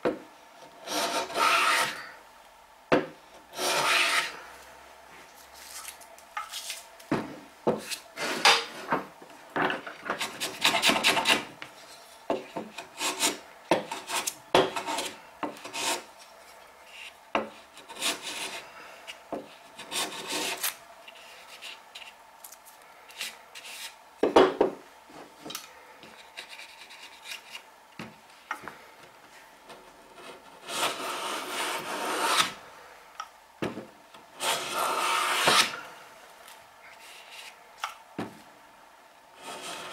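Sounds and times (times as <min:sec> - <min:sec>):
hand plane shaving wood: 0:00.8 - 0:02.0, 0:03.5 - 0:04.4, 0:30.6 - 0:32.6, 0:34.4 - 0:35.8.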